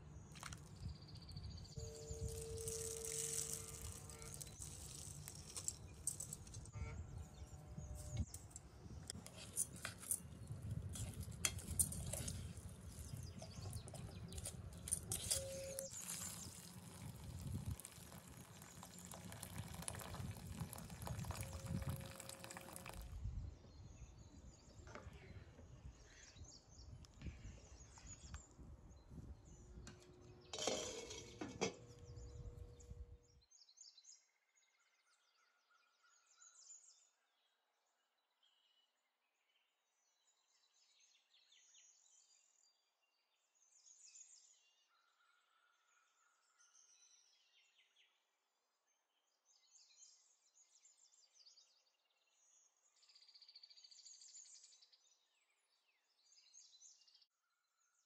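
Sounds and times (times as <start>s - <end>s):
water pouring: 0.3s - 0.8s, 1.9s - 6.7s, 10.9s - 23.2s
grains scattered into pot: 0.3s - 1.2s, 1.8s - 6.7s, 9.2s - 23.1s
utensils and glass lid clinking: 2.0s - 6.7s, 9.2s - 16.8s, 30.6s - 31.8s.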